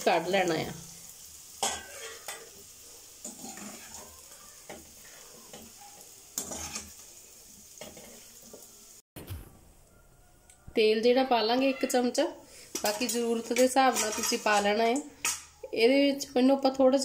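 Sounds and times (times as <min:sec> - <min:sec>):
hot oil sizzling faintly: 0:00.0 - 0:09.0, 0:09.8 - 0:17.0
steel spoon scraping a pan: 0:00.7 - 0:08.6, 0:11.8 - 0:15.6.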